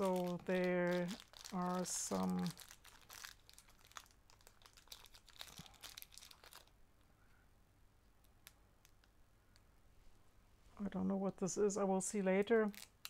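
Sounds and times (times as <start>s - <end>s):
plastic packaging crinkling: 0.0s - 6.8s, 12.4s - 13.0s.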